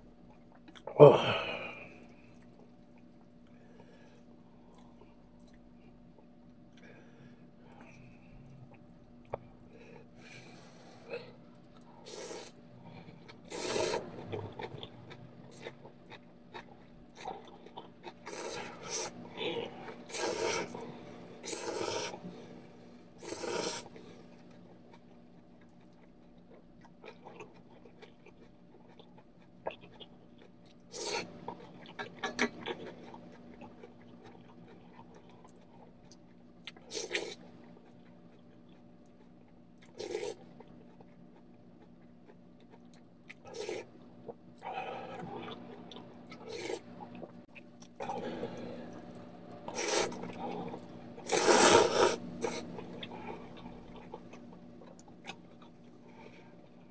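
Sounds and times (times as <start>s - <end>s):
quiet chewing: 0.2s - 1.0s, 1.7s - 22.6s, 23.2s - 56.9s
person slurping noodles: 12.0s - 12.6s, 13.4s - 14.4s, 18.2s - 20.8s, 21.4s - 22.3s, 23.2s - 23.9s, 30.9s - 31.3s, 40.0s - 40.4s, 43.5s - 43.9s, 46.4s - 46.9s, 49.7s - 53.4s.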